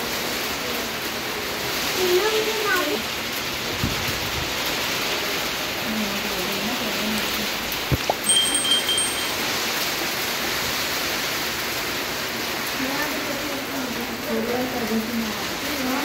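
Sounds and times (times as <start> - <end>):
heavy rain: 0.0 - 16.0
short high chime: 8.2 - 9.6.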